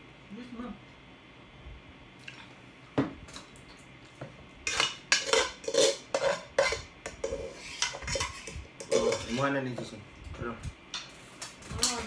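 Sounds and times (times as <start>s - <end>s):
cutlery clinking and scraping on dish: 4.7s - 9.5s.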